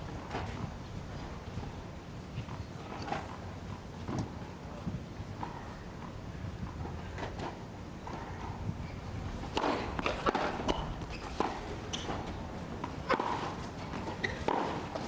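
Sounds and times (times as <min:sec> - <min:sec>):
racquets striking tennis ball: 0:09.4 - 0:15.0
tennis ball bouncing: 0:09.5 - 0:15.0.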